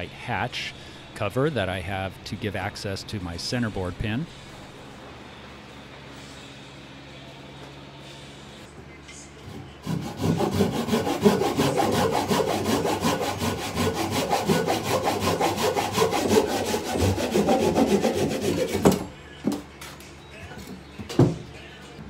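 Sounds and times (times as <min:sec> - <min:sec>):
hand saw cutting wood: 0:09.5 - 0:19.1.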